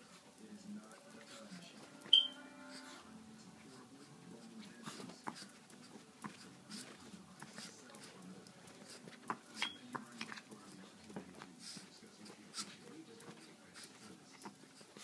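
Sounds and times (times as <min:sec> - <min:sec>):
small dogs scuffling: 0:03.5 - 0:15.0
dog claws clicking and scraping: 0:04.9 - 0:15.0.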